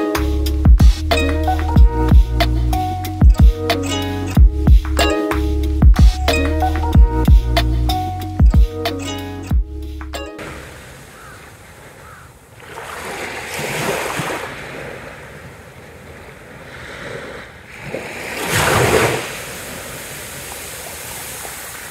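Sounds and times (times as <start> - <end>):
small waves washing on sand: 10.4 - 21.9.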